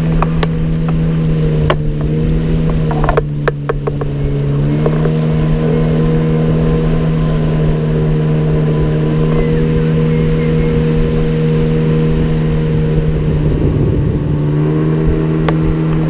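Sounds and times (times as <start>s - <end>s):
outboard motor running: 0.0s - 16.0s
sharp knocks: 1.6s - 4.2s.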